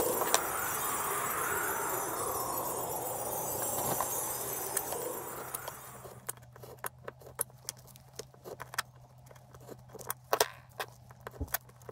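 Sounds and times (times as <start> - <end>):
hiss: 0.0 - 6.2.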